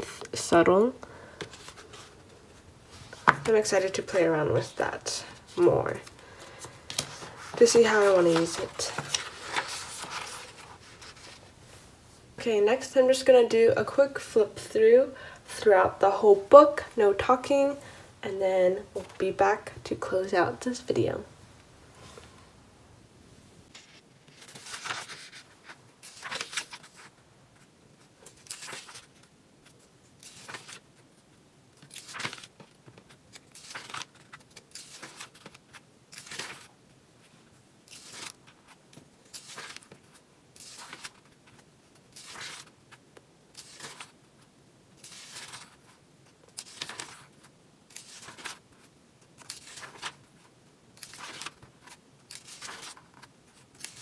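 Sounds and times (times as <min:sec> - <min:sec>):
planner pages flipping: 0:05.5 - 0:11.4, 0:23.7 - 0:27.1, 0:28.3 - 0:29.3, 0:30.2 - 0:30.8, 0:31.8 - 0:36.7, 0:37.9 - 0:42.7, 0:43.6 - 0:44.2, 0:45.0 - 0:48.8, 0:49.4 - 0:50.2, 0:51.0 - 0:54.0.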